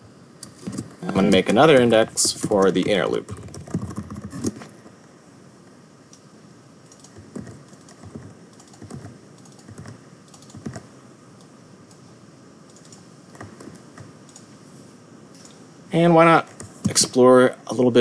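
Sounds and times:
keyboard keys tapping: 0:01.8 - 0:04.6, 0:06.9 - 0:10.9.

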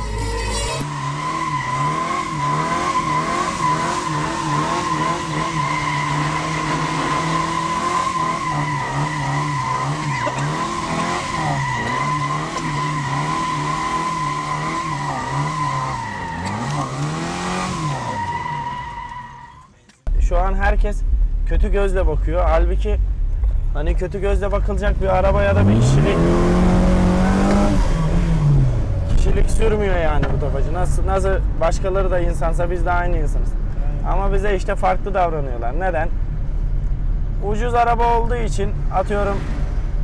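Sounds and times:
tyres squealing: 0:00.5 - 0:19.9
car engine revving: 0:00.8 - 0:19.4, 0:20.1 - 0:40.0.

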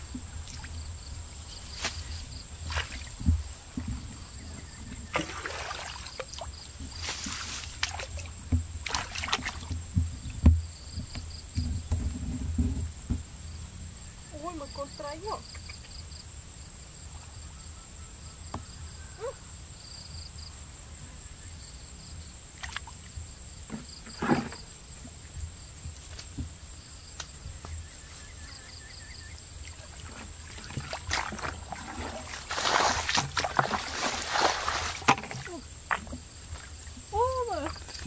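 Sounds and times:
high insect whine: 0:00.0 - 0:38.0
splashing in muddy water: 0:01.7 - 0:03.3, 0:04.6 - 0:09.8, 0:29.6 - 0:38.0
faint chirping: 0:27.5 - 0:30.9.

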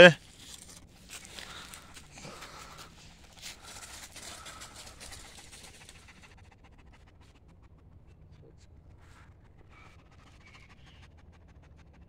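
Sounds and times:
footsteps crunching dry leaves: 0:00.2 - 0:05.6.

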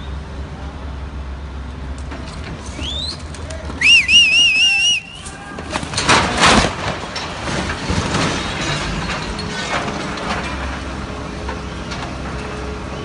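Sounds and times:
rough rumble: 0:01.9 - 0:13.0
crane crashing: 0:02.0 - 0:13.0
metal clanks: 0:05.2 - 0:12.3.

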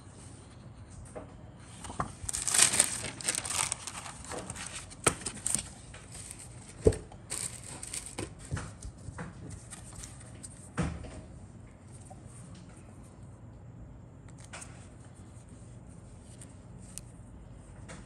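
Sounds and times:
paper and plastic packaging rustling: 0:01.7 - 0:10.7.

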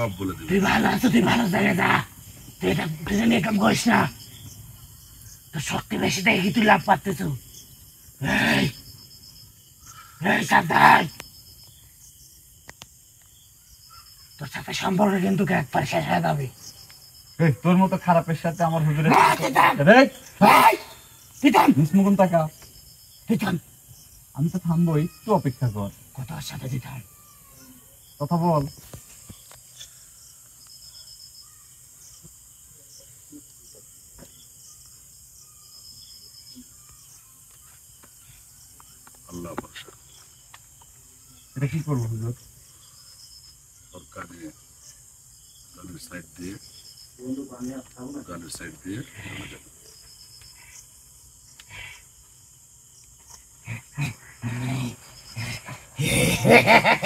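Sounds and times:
crickets chirping: 0:00.0 - 0:57.0
high insect hum: 0:00.0 - 0:57.0
man grunting and growling: 0:08.2 - 0:08.8, 0:53.8 - 0:57.0.

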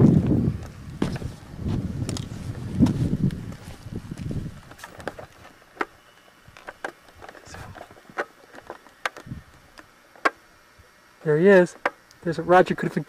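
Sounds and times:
wind rumble on microphone: 0:00.0 - 0:05.4, 0:09.2 - 0:09.7
footsteps on gravel: 0:00.2 - 0:09.4.

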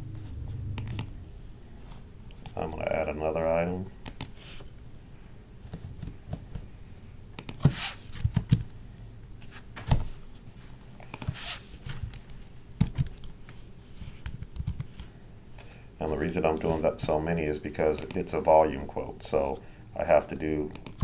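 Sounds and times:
computer mouse and keyboard clicks: 0:14.2 - 0:15.1.

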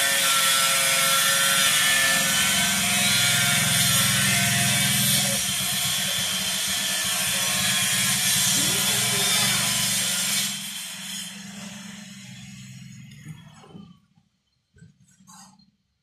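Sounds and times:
machine motor humming: 0:02.4 - 0:14.0.

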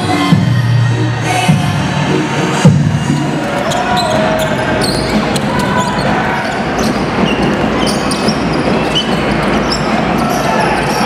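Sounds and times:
crowd noise in echoing hall: 0:00.0 - 0:11.0
sneakers squeaking: 0:02.7 - 0:11.0.

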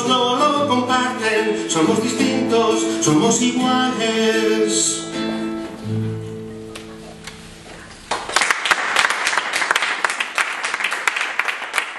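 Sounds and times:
acoustic guitar chord ringing: 0:00.0 - 0:08.2
audience applause: 0:07.7 - 0:11.9.

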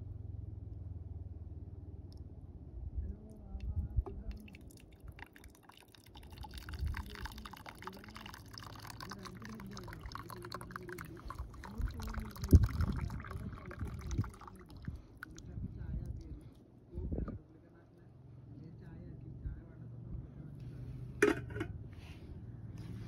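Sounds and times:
tea pouring into mug: 0:04.0 - 0:16.4.

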